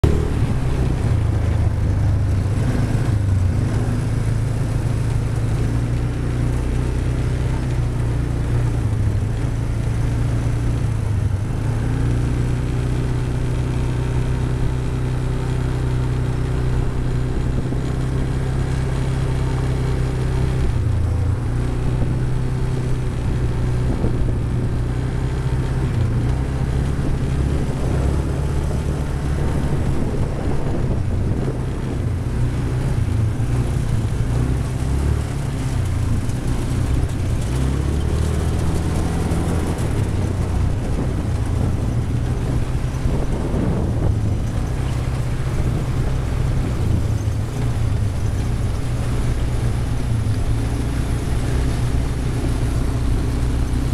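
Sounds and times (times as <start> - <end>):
quad bike engine droning: 0.0 - 53.9.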